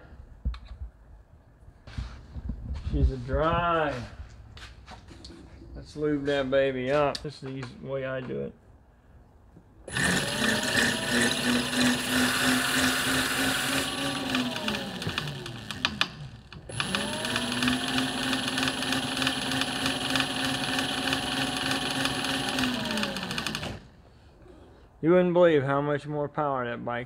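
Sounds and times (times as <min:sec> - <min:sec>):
electric motor whine: 0:09.9 - 0:23.9.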